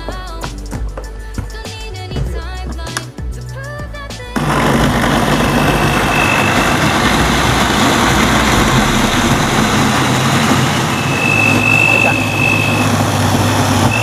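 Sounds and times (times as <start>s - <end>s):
blender motor grinding: 4.4s - 14.0s.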